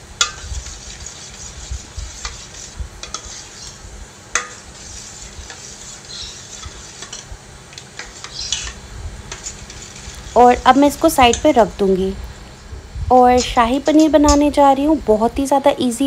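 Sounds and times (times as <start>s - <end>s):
spoon stirring yogurt: 0.2s - 3.8s, 4.4s - 11.6s.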